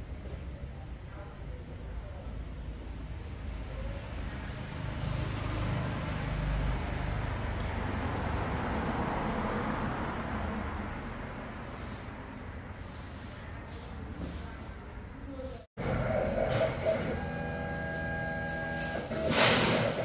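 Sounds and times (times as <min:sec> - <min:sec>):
passing vehicle rumble: 0:03.2 - 0:14.1.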